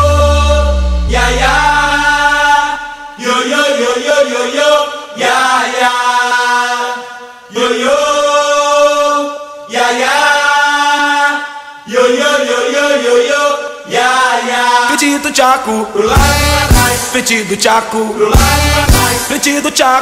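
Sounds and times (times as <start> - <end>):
long held chords: 0.0 - 3.2.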